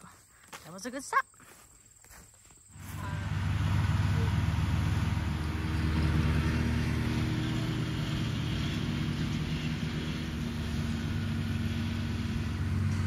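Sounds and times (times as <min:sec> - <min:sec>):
tractor engine running: 0:02.7 - 0:13.0.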